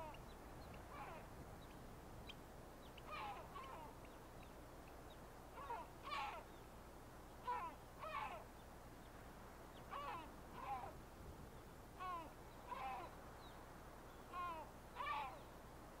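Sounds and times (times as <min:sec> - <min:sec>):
bird harsh falling calls: 0:00.0 - 0:01.3, 0:02.9 - 0:04.2, 0:05.5 - 0:06.6, 0:07.4 - 0:08.5, 0:09.8 - 0:11.0, 0:12.0 - 0:13.2, 0:14.2 - 0:15.5
faint background noise: 0:00.0 - 0:16.0.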